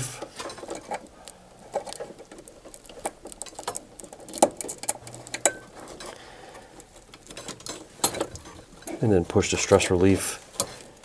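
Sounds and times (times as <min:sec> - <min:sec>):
wires rustling: 0:00.0 - 0:11.0.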